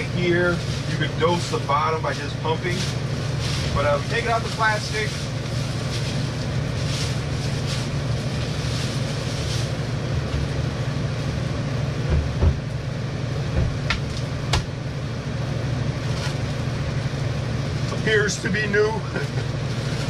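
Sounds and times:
steady low hum: 0.0s - 20.0s
dull knock: 12.1s - 12.7s, 13.5s - 14.7s.

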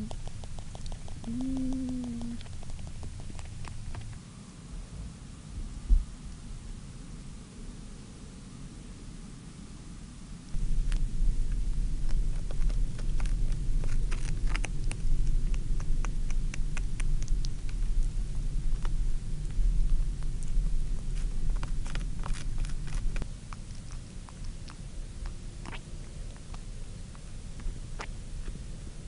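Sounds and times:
steady low rumble: 0.0s - 29.0s
twigs clicking and crackling: 12.1s - 15.6s.

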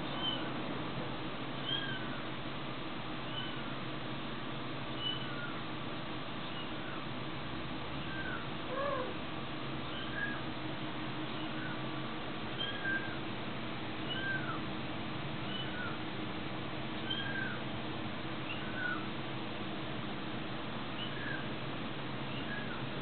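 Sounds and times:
steady low hum: 0.0s - 23.0s
kitten mewing: 8.2s - 9.2s.

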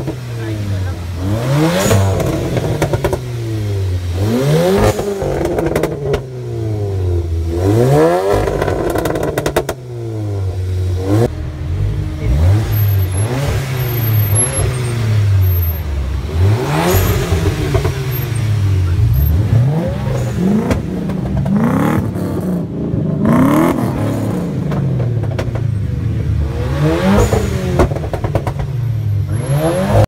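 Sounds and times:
car engine revving in blips: 0.0s - 30.0s.

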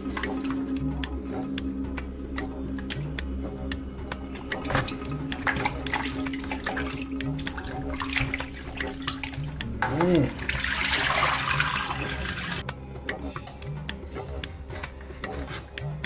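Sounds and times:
water splashing in plastic bowl: 0.0s - 12.7s
steady low hum: 0.0s - 16.0s.

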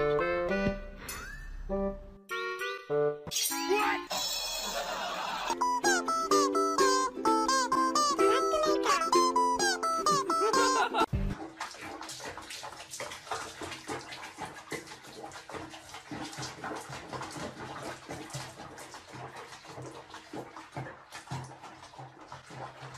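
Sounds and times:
water splashing in basin: 10.5s - 22.9s.

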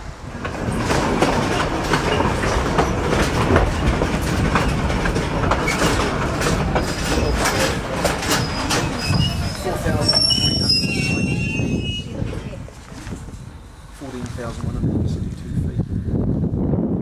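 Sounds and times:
train rumbling on rails: 0.0s - 17.0s
track clicks and knocks: 0.3s - 10.7s.

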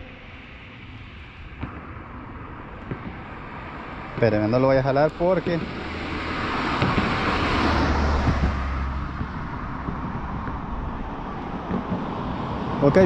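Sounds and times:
car driving past: 2.8s - 13.0s.

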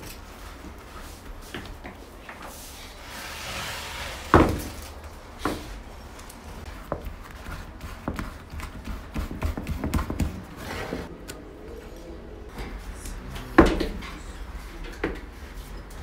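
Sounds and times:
dough thumping on wooden board: 8.0s - 10.5s.

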